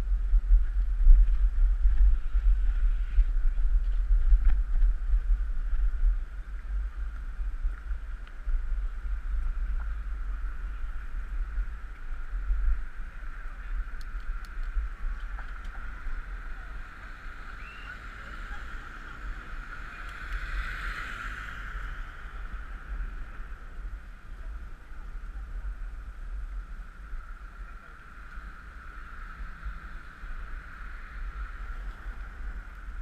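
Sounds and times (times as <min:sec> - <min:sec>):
wind buffeting microphone: 0:00.0 - 0:33.0
car passing close by: 0:16.9 - 0:23.2.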